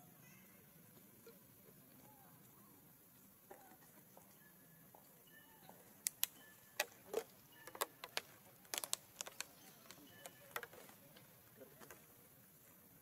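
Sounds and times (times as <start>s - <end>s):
faint high chirps: 0.0s - 11.7s
sharp irregular clicks: 6.0s - 10.8s.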